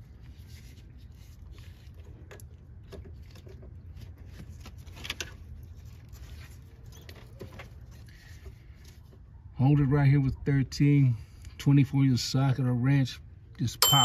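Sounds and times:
faint rustling of gloves: 0:00.0 - 0:09.4.

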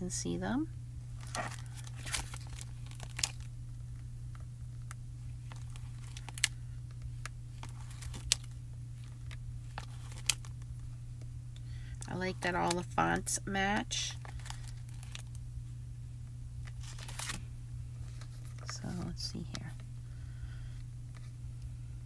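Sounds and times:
steady low hum: 0:00.0 - 0:22.0
plastic crinkling: 0:01.2 - 0:03.5, 0:04.3 - 0:10.9, 0:14.1 - 0:15.4, 0:16.6 - 0:19.8.

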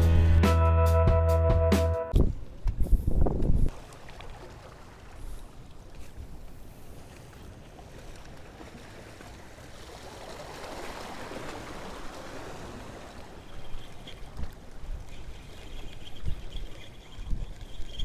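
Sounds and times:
wind buffeting microphone: 0:02.1 - 0:03.8
waves splashing against rocks: 0:03.7 - 0:18.0.

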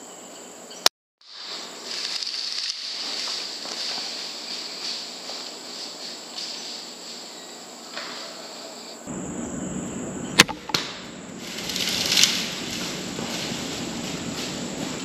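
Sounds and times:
rustling: 0:01.3 - 0:09.0, 0:11.4 - 0:15.0
bolt striking smack: 0:10.4 - 0:11.0
crossbow string crack: 0:10.4 - 0:12.5.

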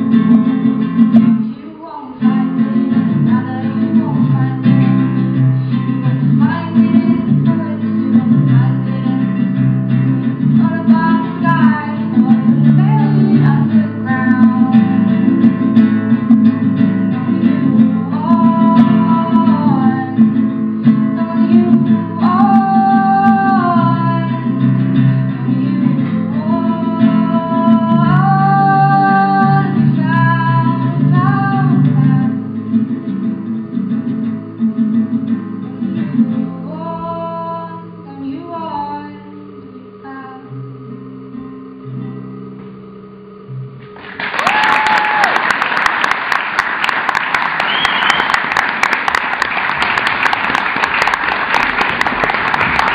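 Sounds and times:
acoustic guitar: 0:00.0 - 0:52.9
person singing: 0:01.4 - 0:09.8, 0:10.4 - 0:15.7, 0:17.0 - 0:32.6, 0:36.1 - 0:45.2
audience applause: 0:44.0 - 0:52.9
person cheering: 0:44.2 - 0:45.7.

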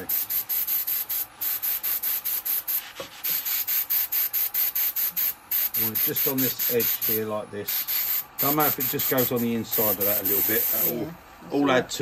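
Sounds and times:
scratchy rubbing on spinning wood: 0:02.7 - 0:03.4.

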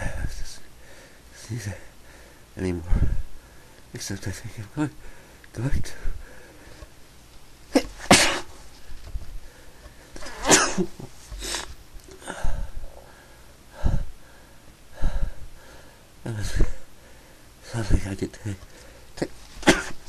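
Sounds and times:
person sneezing: 0:07.7 - 0:08.6, 0:10.2 - 0:12.3, 0:19.6 - 0:20.0.

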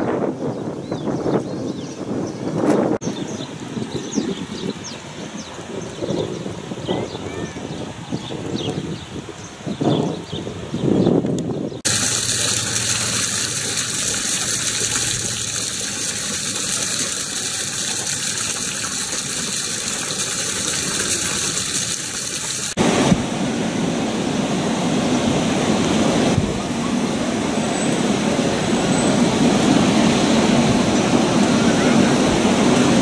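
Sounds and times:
fountain water splashing: 0:11.9 - 0:23.1
rough rushing water: 0:11.9 - 0:33.0.

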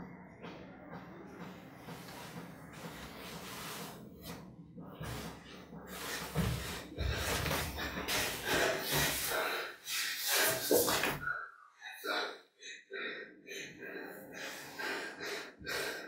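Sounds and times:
man breathing heavily: 0:05.0 - 0:16.0.

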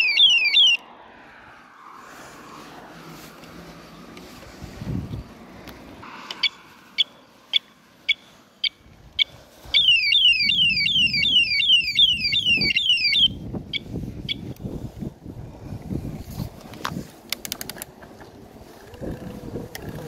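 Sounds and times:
falling siren sweep: 0:00.0 - 0:04.2, 0:09.7 - 0:13.4.

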